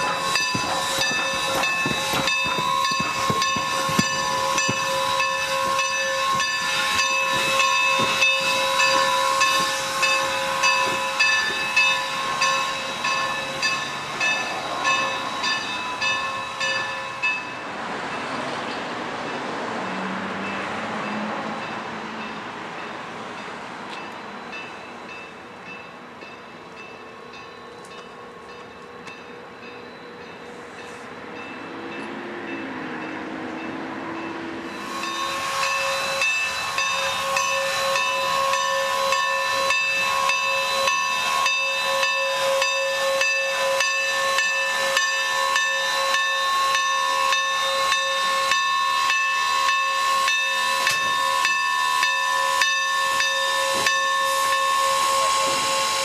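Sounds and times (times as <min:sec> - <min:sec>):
steam blowing off: 0:00.0 - 0:16.9, 0:34.7 - 0:48.5
loud steady steam hiss: 0:00.0 - 0:19.1, 0:32.8 - 0:56.0.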